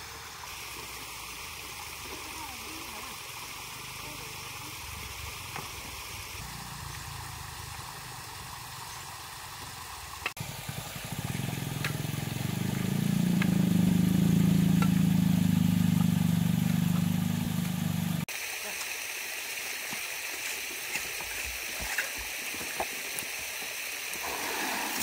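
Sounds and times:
stream water trickling: 0.0 - 25.0
motor engine humming: 10.4 - 18.3.

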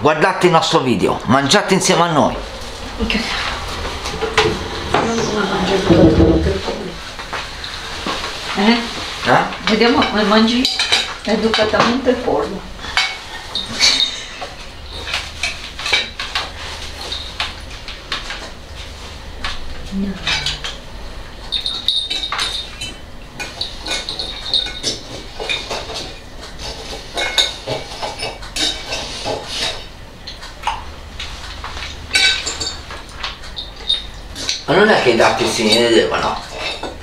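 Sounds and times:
cutlery clinking on plates: 9.6 - 12.0, 12.8 - 17.6, 21.4 - 30.8, 31.7 - 37.0.

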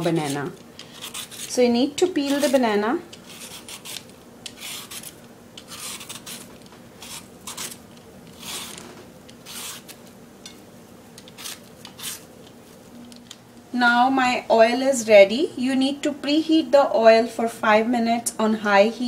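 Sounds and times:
vegetable peeler scraping peel: 0.0 - 10.0, 11.2 - 12.3.

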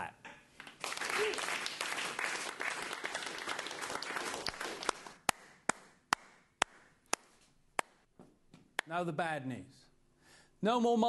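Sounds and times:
people applauding: 0.6 - 6.4.

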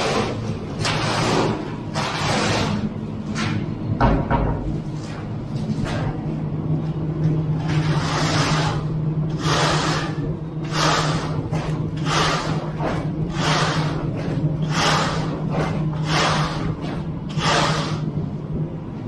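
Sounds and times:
straightedge scraping wet concrete: 0.0 - 2.9, 7.7 - 18.1
steady low hum: 0.0 - 19.0.

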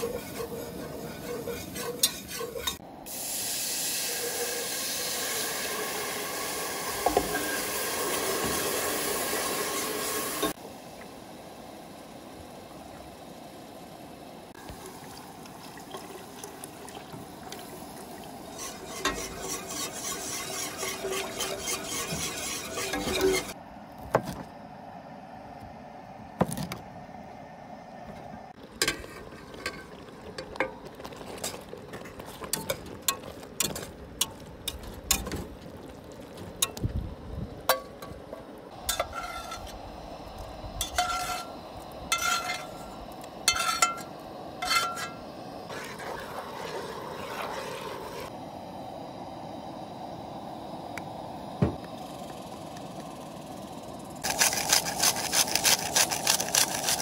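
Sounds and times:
metal spatula scraping skillet: 0.0 - 2.8, 18.5 - 23.6, 38.8 - 39.8, 40.8 - 48.3.

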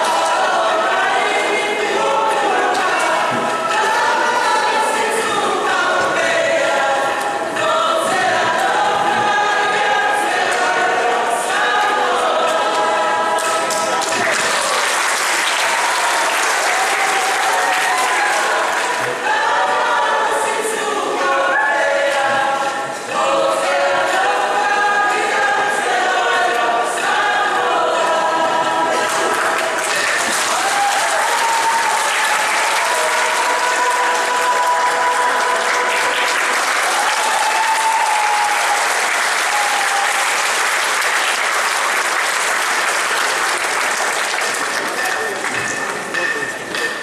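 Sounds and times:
long drawn-out voices: 0.0 - 41.4
group singing together: 0.0 - 46.3
audience applause: 11.7 - 22.3, 28.8 - 46.8.

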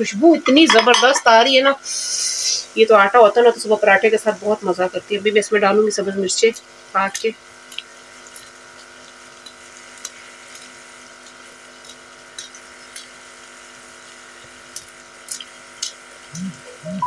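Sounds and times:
faint hum: 0.0 - 17.0
curry sizzling in a pan: 0.4 - 16.9
small crackles: 6.3 - 16.9.

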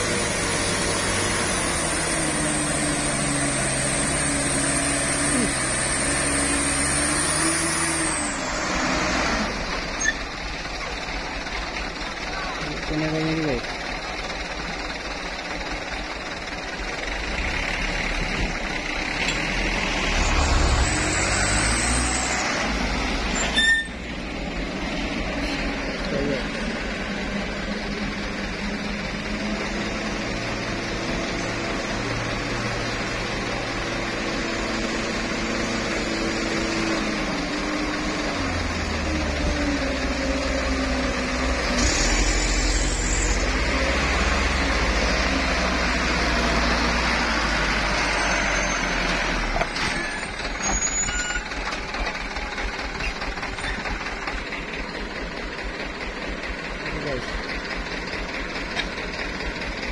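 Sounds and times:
diesel truck engine labouring: 0.0 - 59.9.

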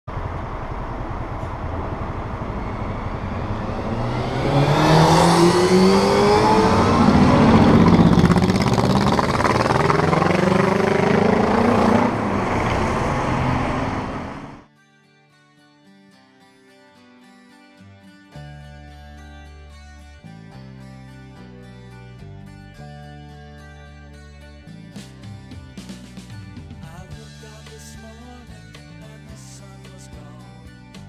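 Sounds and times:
bus engine accelerating: 0.0 - 14.6
street traffic: 0.1 - 14.6.

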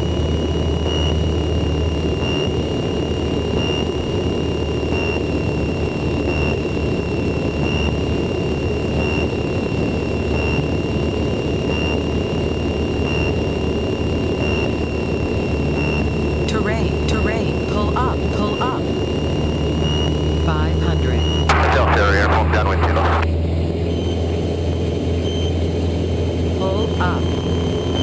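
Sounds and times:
light aircraft engine drone: 0.0 - 28.0
thin high pulsing whine: 0.0 - 28.0.

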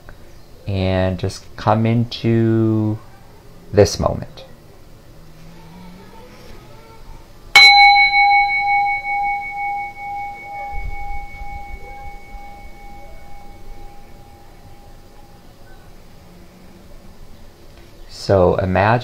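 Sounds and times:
meditation bell ringing: 7.6 - 15.6.

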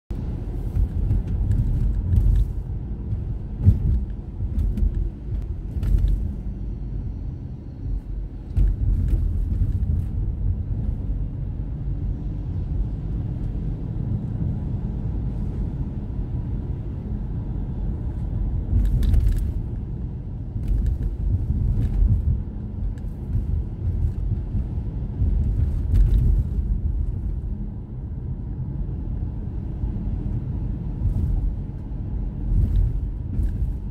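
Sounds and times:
car road noise rumble: 0.1 - 33.9
short knocks and thumps: 0.7 - 6.3.

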